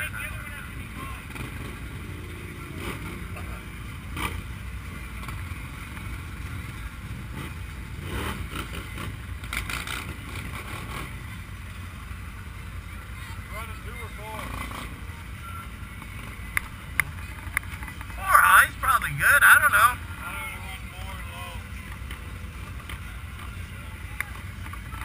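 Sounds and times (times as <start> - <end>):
engines idling low rumble: 0.0 - 25.0.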